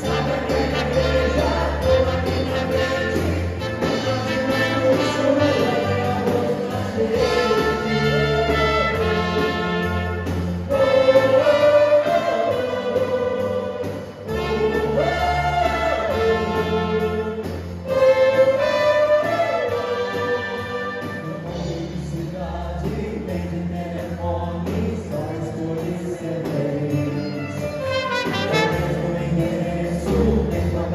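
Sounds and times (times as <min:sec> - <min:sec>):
trumpets: 0:00.0 - 0:21.8, 0:27.1 - 0:29.4
vocal ensemble singing pop ballad: 0:00.0 - 0:27.9, 0:28.5 - 0:30.9
keyboard: 0:00.0 - 0:30.9.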